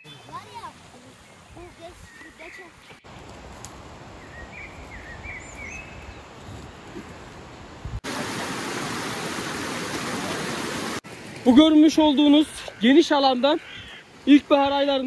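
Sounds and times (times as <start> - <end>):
stream rushing over rocks: 8.0 - 12.0.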